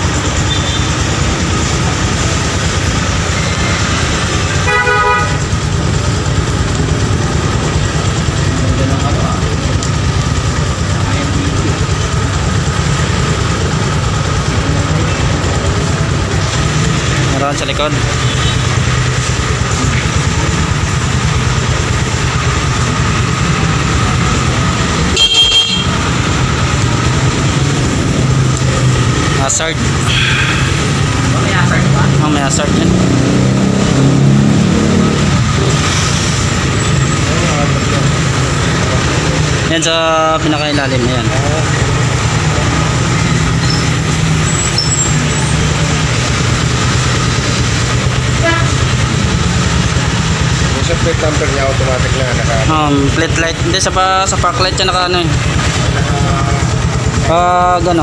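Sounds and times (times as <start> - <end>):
motorcycle engine idling: 0.0 - 58.0
short horn beep: 0.5 - 1.0, 25.1 - 26.0.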